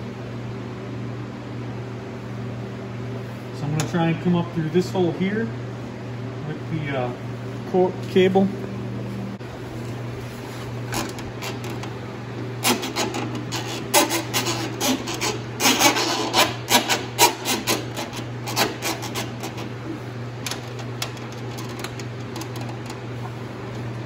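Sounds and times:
steady low hum: 0:00.0 - 0:24.0
cable scraping and clicking: 0:10.9 - 0:11.9, 0:12.6 - 0:19.7.

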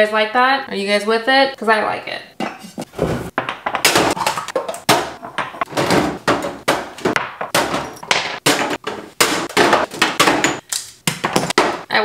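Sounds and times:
bottles knocking on shelves: 0:02.4 - 0:11.9.

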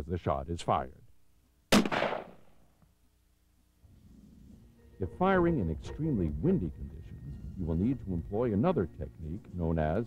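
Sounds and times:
faint low rumble: 0:03.8 - 0:10.0.

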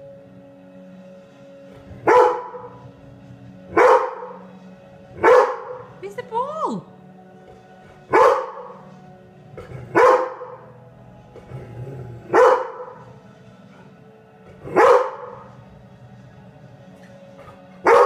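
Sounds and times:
dog barking: 0:02.0 - 0:02.8, 0:03.7 - 0:04.5, 0:05.2 - 0:06.0, 0:08.1 - 0:08.8, 0:09.9 - 0:10.6, 0:12.3 - 0:13.0, 0:14.7 - 0:15.5, 0:17.8 - 0:18.0.

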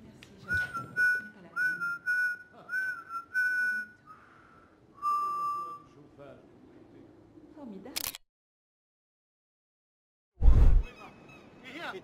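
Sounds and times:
whistled tune: 0:00.5 - 0:04.3, 0:05.0 - 0:05.9.

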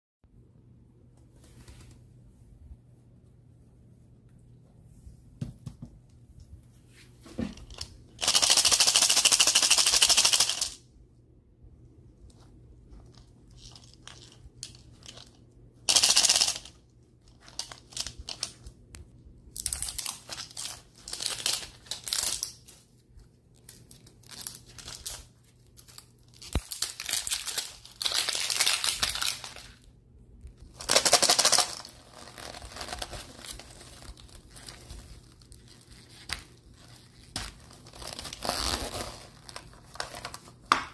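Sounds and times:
plastic rustling: 0:12.4 - 0:18.9, 0:19.5 - 0:29.9, 0:30.6 - 0:40.8
plastic wrapper tearing: 0:19.6 - 0:22.8, 0:23.6 - 0:29.9, 0:30.7 - 0:40.8.

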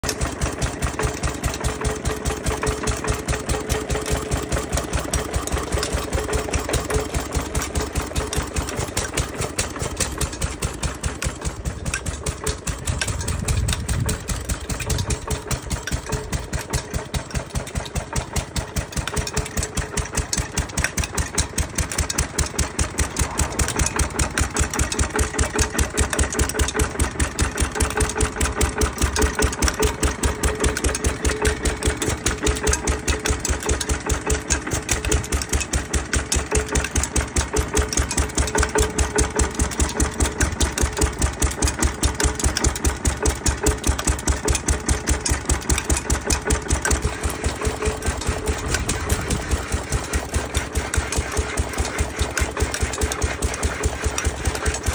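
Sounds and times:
power hacksaw sawing: 0:00.0 - 0:54.9
stationary engine running: 0:00.0 - 0:54.9
low rumble: 0:23.0 - 0:24.4.

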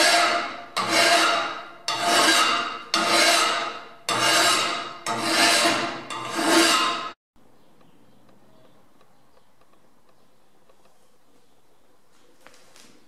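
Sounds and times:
hand file rasping on metal: 0:00.0 - 0:07.2.

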